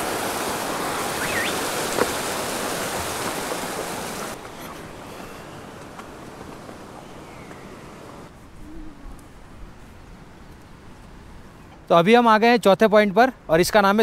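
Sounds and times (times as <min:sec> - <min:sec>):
stream rushing over rocks: 0:00.0 - 0:06.9
short rising chirp: 0:01.2 - 0:01.7.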